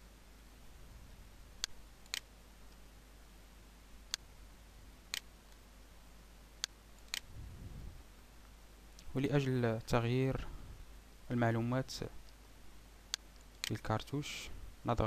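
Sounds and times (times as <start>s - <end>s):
faint low hum: 0.0s - 15.0s
mouse buttons clicking: 1.6s - 2.8s.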